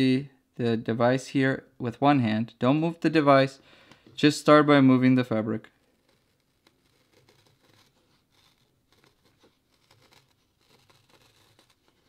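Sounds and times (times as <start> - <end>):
blade scratching felt: 5.6 - 12.0.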